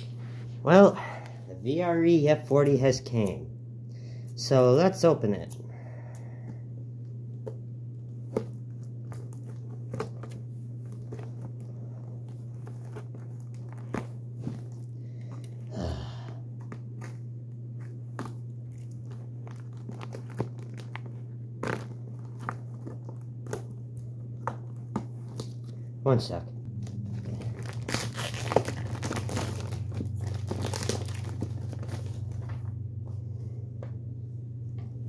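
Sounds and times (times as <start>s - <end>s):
steady low hum: 0.0s - 35.0s
plastic packaging crinkling: 8.3s - 15.5s, 17.9s - 24.0s, 26.7s - 32.7s.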